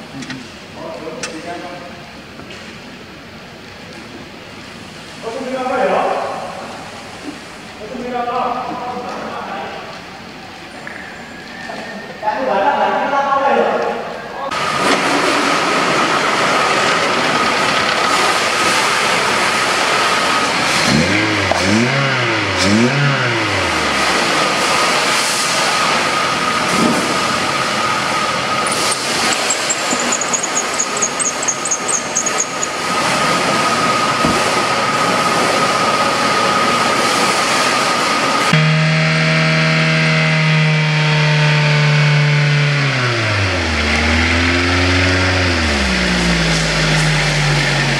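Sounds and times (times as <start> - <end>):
car engine revving: 14.5 - 47.9
steady high whine: 15.7 - 47.9
high wavering squeal: 21.9 - 37.0.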